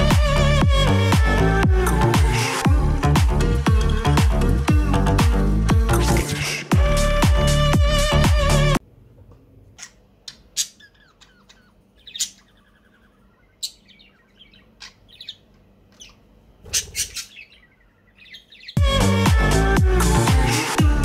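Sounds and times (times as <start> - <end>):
background music: 0.0 - 8.8, 18.8 - 21.0
budgerigar chirping and squawking: 9.8 - 18.8.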